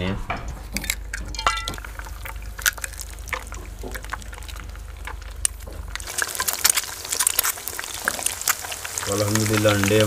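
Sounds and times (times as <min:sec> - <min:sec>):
eggs sizzling in frying pan: 0:00.7 - 0:10.0
low rumble: 0:01.7 - 0:06.1.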